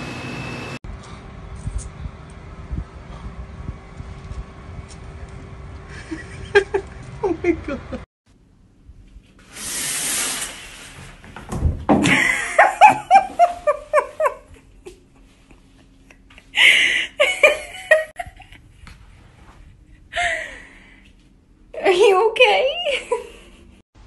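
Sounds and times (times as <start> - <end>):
person laughing hard: 5.9 - 8.0, 12.0 - 18.6
shower curtain swishing: 9.3 - 11.4.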